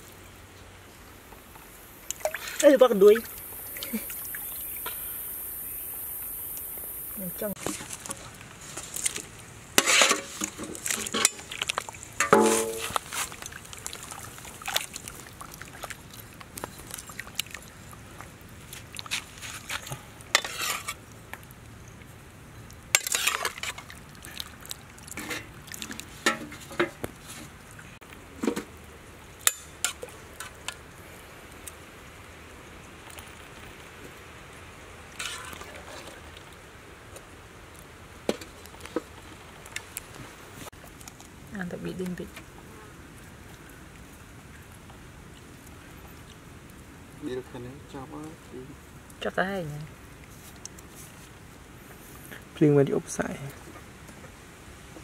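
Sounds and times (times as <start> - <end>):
water sloshing: 1.4 - 4.9, 7.4 - 31.0, 32.9 - 37.4.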